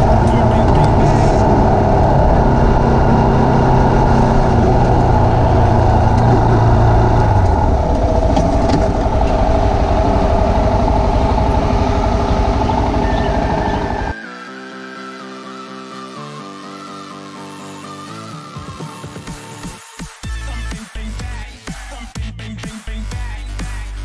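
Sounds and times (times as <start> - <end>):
motorcycle engine running: 0.0 - 14.1.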